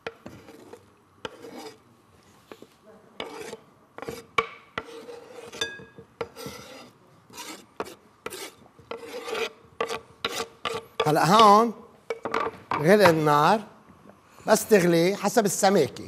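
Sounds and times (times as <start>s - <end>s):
knife scraping on wooden board: 0.0s - 1.8s, 3.2s - 11.5s.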